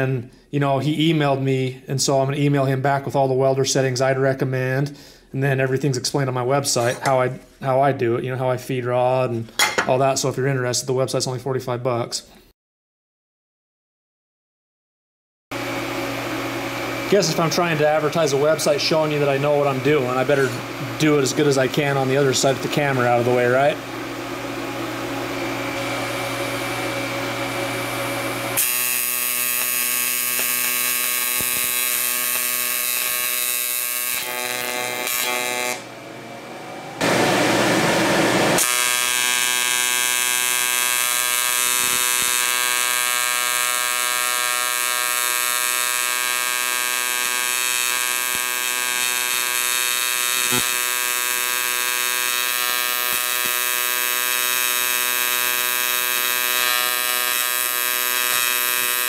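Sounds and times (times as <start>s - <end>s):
welding arc buzzing: 15.5s - 59.0s.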